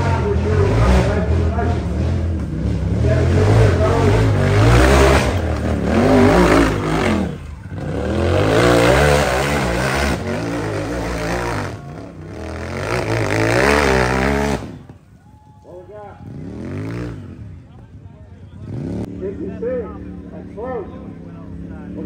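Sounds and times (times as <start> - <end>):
engine revving hard: 0.0 - 14.8, 16.2 - 17.4.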